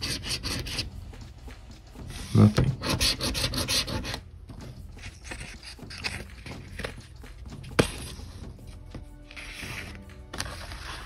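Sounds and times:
paper rustling on a tabletop: 0:05.0 - 0:11.0.

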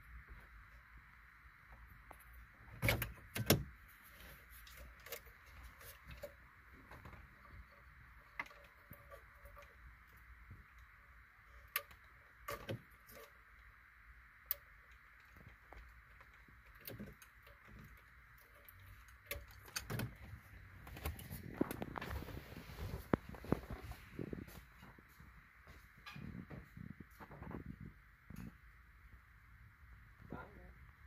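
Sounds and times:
plastic connectors clicking and knocking: 0:14.4 - 0:22.3.

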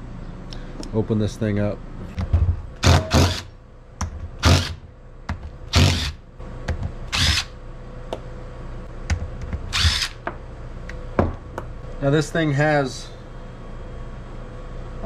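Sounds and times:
cordless drill spinning bolts: 0:04.4 - 0:04.7, 0:07.1 - 0:07.5, 0:09.7 - 0:10.2.

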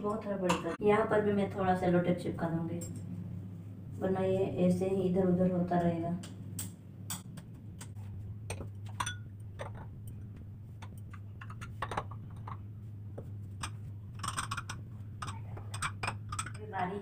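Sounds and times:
steady low hum: 0:00.0 - 0:17.0
jars and utensils clinking: 0:08.5 - 0:09.8, 0:13.6 - 0:16.8.

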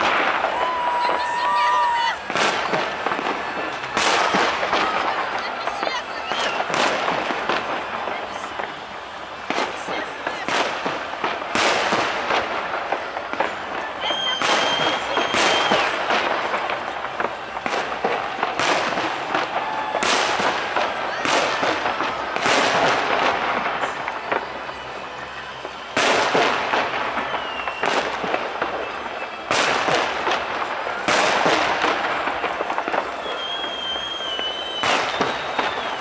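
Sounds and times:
firework crackling: 0:00.0 - 0:36.0
firework shells bursting: 0:25.5 - 0:36.0.

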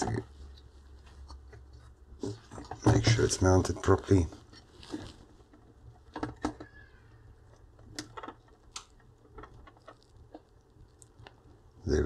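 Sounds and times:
soldering clicks and crackles: 0:07.4 - 0:11.8.

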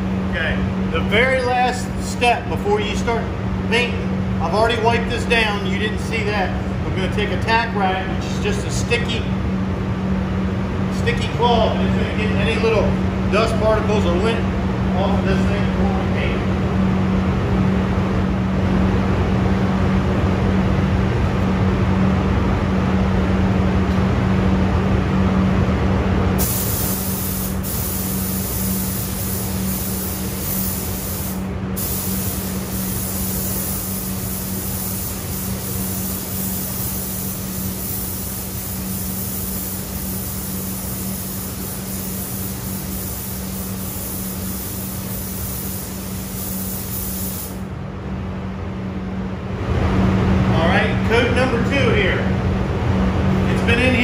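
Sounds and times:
exhaust fan humming: 0:00.0 - 0:54.0
paint spray gun hissing: 0:26.4 - 0:47.6.

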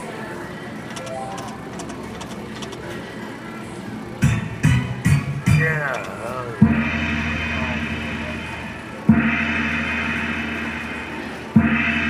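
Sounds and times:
gong ringing: 0:06.6 - 0:12.0.

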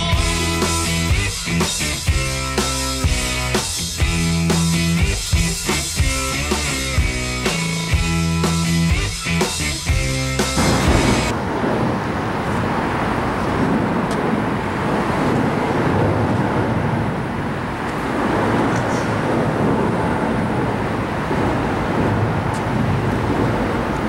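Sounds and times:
falling rain: 0:10.4 - 0:24.0
wind on microphone: 0:10.6 - 0:24.0.

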